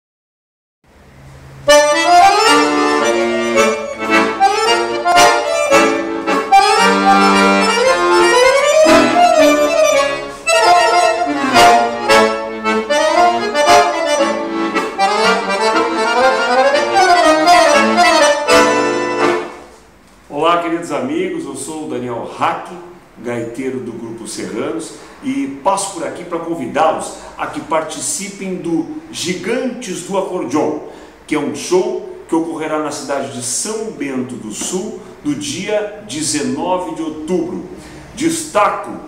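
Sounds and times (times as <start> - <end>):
accordion melody with bass notes: 0.9 - 21.4, 25.8 - 30.1, 32.9 - 39.0.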